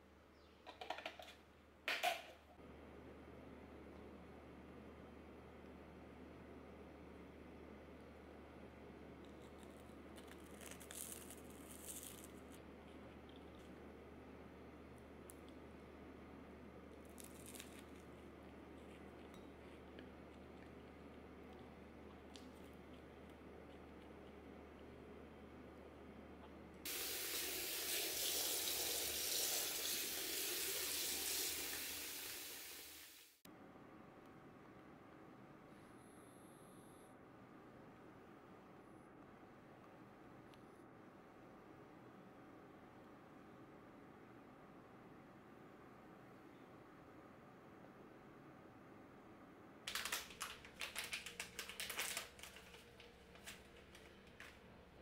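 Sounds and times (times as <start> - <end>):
steady low hum: 2.6 - 26.9.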